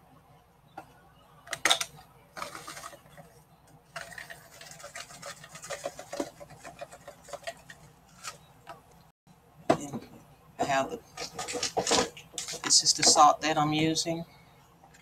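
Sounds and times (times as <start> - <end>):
salt rattling from container: 4.0 - 7.7.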